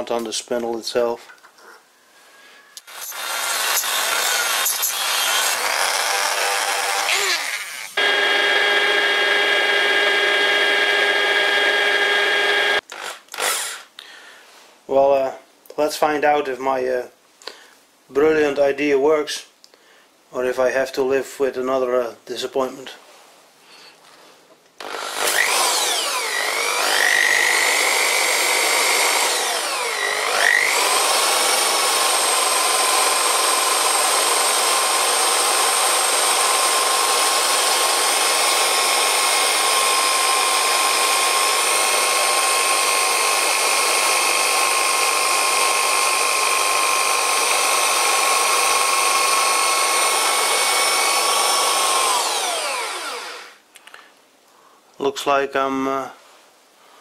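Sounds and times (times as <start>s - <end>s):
electric drill whining: 2.8s - 13.9s, 24.8s - 53.6s.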